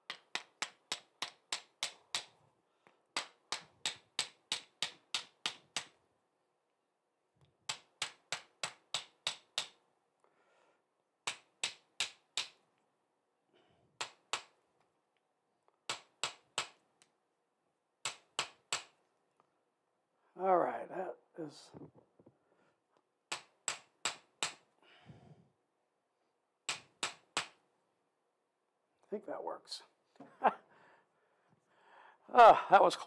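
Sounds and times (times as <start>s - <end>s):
hammer tapping wood: 0.0s - 2.3s, 3.2s - 6.0s, 7.6s - 9.8s, 11.2s - 12.6s, 18.0s - 19.0s, 23.3s - 24.6s, 26.7s - 27.6s.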